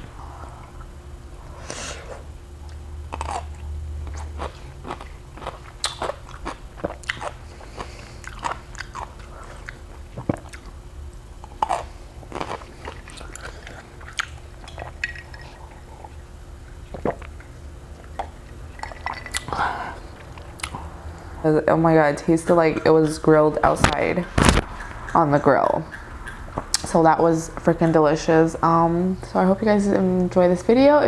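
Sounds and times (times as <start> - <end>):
low steady hum: 0.0 - 31.0
chewing crunchy food: 2.6 - 21.3.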